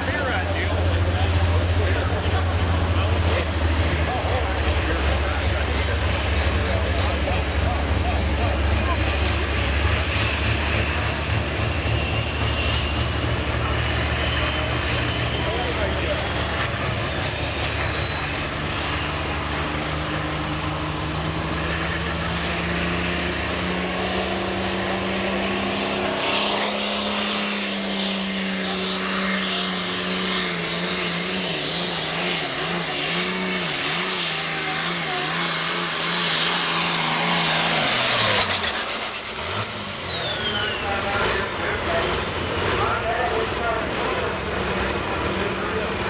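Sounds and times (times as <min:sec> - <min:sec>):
diesel tractor engine at full throttle: 0:00.0 - 0:46.0
high turbo whine: 0:00.0 - 0:46.0.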